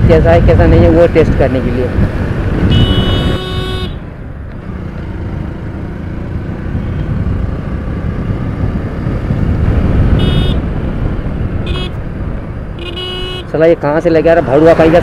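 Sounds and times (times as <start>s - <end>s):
wind rush: 0.0s - 4.4s, 6.3s - 12.9s
motorcycle engine: 1.4s - 15.0s
vehicle horn beeping: 2.6s - 4.0s, 10.2s - 10.7s, 11.7s - 12.0s, 12.8s - 13.5s.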